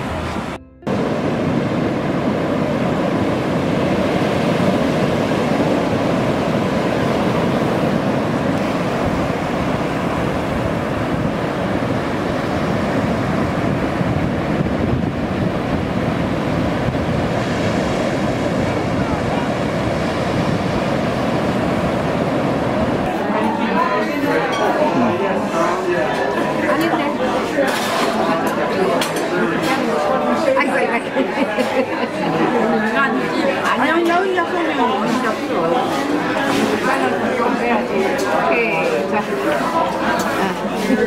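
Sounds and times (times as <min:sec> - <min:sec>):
wind on the microphone: 0:00.0 - 0:23.1
surf breaking on beach: 0:00.0 - 0:23.4.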